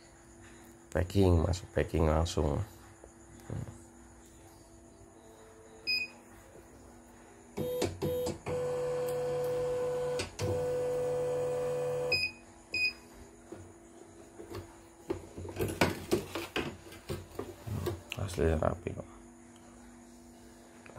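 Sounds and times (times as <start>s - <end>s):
embroidery machine beeps: 5.8s - 6.2s, 7.6s - 13.0s.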